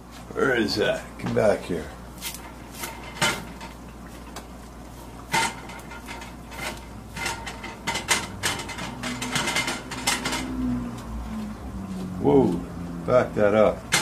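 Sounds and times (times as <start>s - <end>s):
skillet scraping on coil burner: 1.7s - 11.6s.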